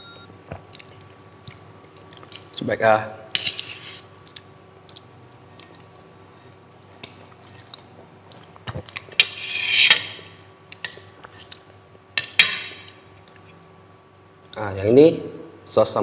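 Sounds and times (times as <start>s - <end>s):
spoon and fork scraping metal plate: 3.4s - 4.1s, 9.2s - 10.3s.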